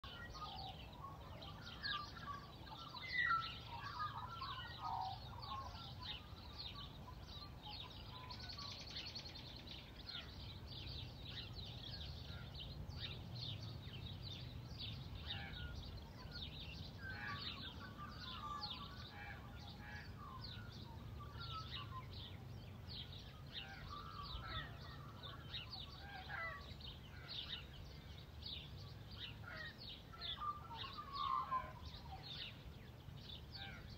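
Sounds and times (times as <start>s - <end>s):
faint low background noise: 0.0s - 33.9s
lower bird warbling calls: 0.0s - 33.9s
small birds chirping: 0.0s - 33.9s.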